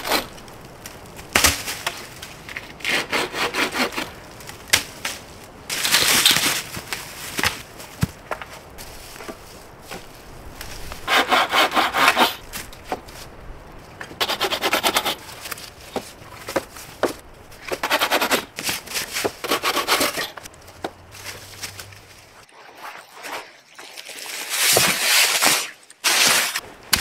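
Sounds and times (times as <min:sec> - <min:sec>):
hand saw cutting wood: 0:02.8 - 0:04.1, 0:11.1 - 0:12.4, 0:14.2 - 0:15.2, 0:17.6 - 0:20.5.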